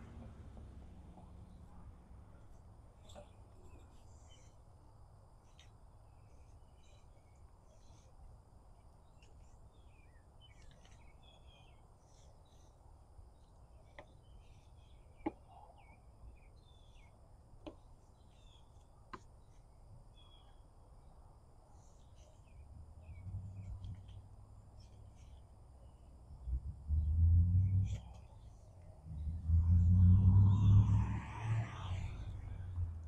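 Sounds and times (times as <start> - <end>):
birds chirping: 5.4 - 29.4.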